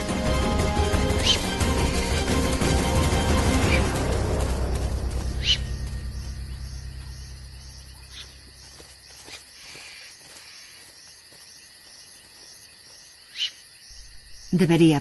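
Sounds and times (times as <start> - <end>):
low music: 0.0 - 8.7
crickets chirping: 2.7 - 15.0.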